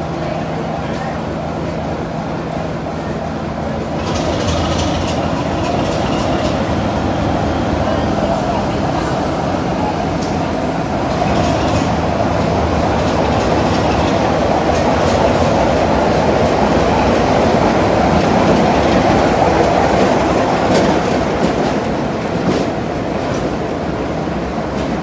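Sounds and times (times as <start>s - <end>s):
diesel locomotive engine running: 0.0s - 25.0s
train wheels clicking: 3.7s - 7.4s, 8.3s - 23.8s.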